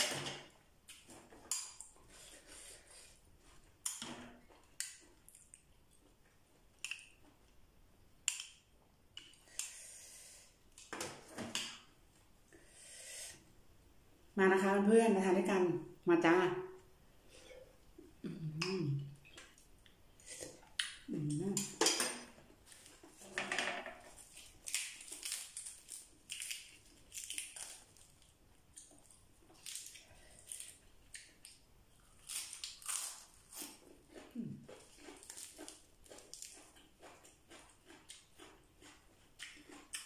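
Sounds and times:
person humming: 18.2s - 19.2s, 21.1s - 21.7s
person chewing crunchy food: 24.1s - 40.0s.

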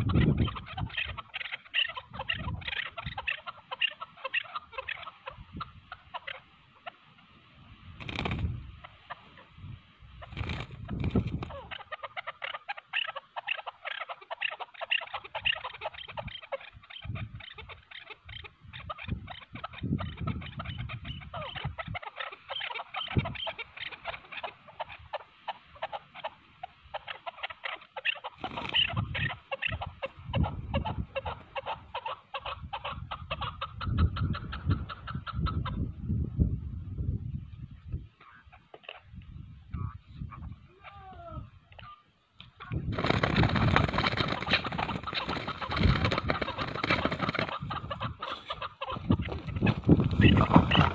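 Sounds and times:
partridges clucking: 10.3s - 11.7s, 43.0s - 49.6s.

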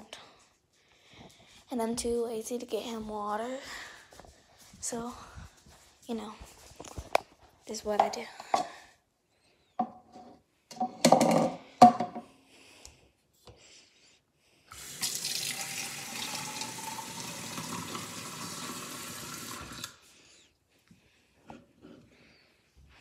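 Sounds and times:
faucet running into plastic cup: 14.7s - 20.0s.

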